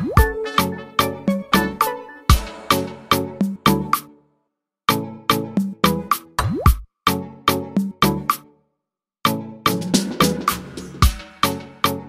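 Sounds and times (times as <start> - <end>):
music with steady drum beat: 1.3 - 4.1, 9.7 - 12.0.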